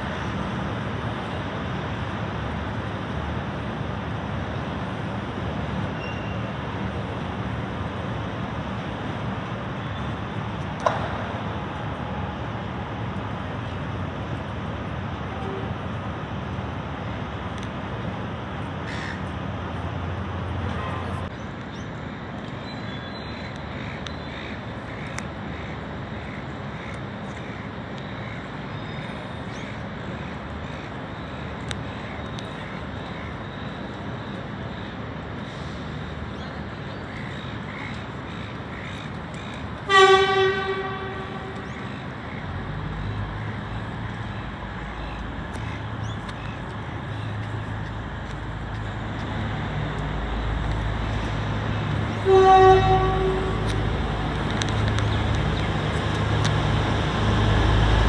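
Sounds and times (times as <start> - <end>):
rail yard rumble: 0.0 - 58.0
train horn blast: 15.3 - 15.8, 39.9 - 41.6, 52.2 - 53.8.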